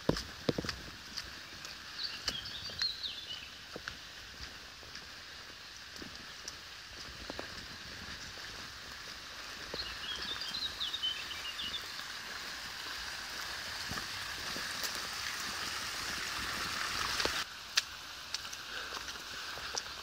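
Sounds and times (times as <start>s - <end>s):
bird chirping: 1.4s - 3.6s, 9.7s - 12.0s
fountain jets splashing into basin: 4.4s - 20.0s.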